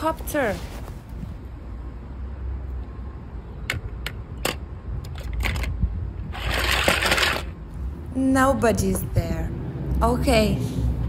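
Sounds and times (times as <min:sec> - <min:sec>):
rustling scrape: 0:00.0 - 0:01.4, 0:06.3 - 0:07.5
toy cars clicking: 0:03.7 - 0:07.6.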